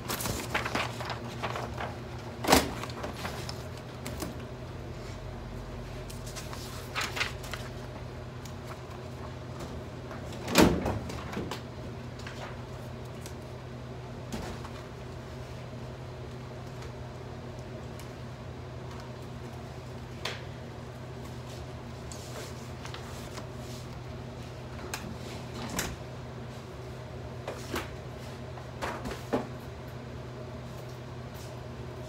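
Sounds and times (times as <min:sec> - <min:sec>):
paper sheets rustling: 0:00.0 - 0:04.5, 0:05.2 - 0:09.4, 0:11.0 - 0:13.4, 0:21.2 - 0:24.1.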